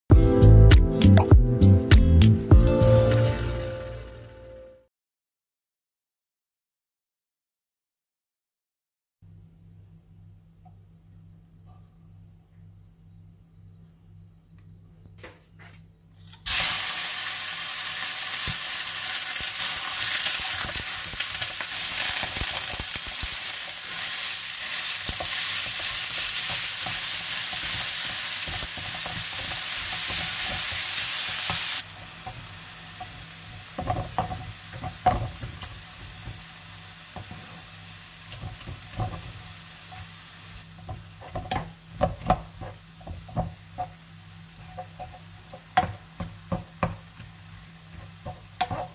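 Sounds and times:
meat sizzling in a frying pan: 16.5 - 48.9
wooden spatula scraping a pan: 38.3 - 40.1, 40.8 - 44.0, 44.6 - 45.7, 47.2 - 48.9.

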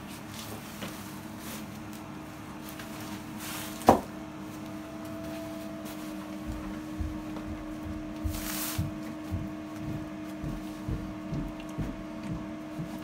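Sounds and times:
hydraulic rig humming: 3.2 - 13.0.

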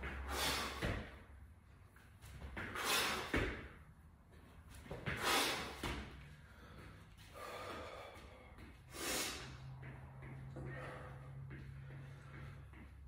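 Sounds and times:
person exhaling forcefully: 0.2 - 1.1, 5.2 - 5.9.

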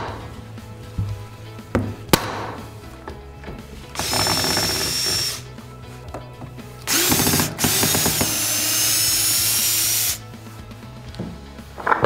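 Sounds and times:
cordless drill driving screw: 3.9 - 5.5, 6.8 - 10.2.

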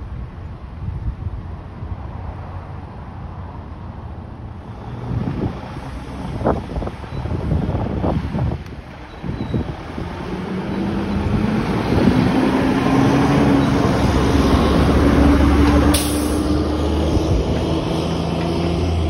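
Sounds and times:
fire engine diesel engine accelerating: 4.5 - 19.0
air brake hiss: 16.0 - 16.5.

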